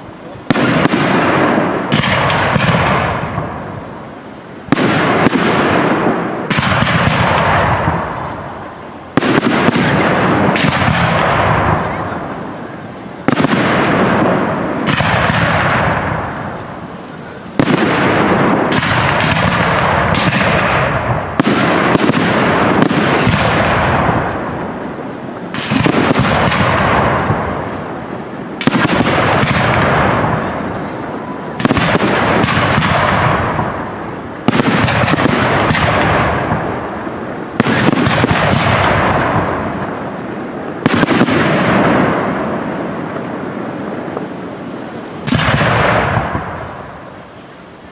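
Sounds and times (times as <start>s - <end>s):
firework shells bursting: 0.5s - 44.4s.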